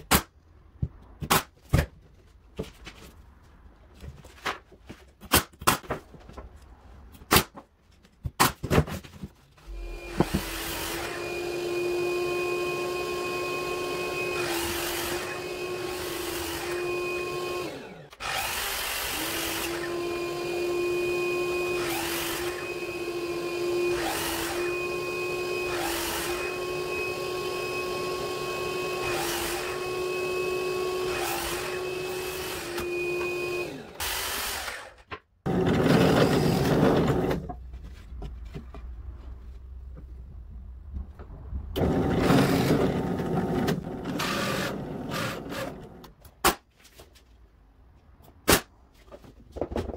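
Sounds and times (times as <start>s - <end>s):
miter saw cutting wood: 9.7s - 37.4s, 41.8s - 46.0s.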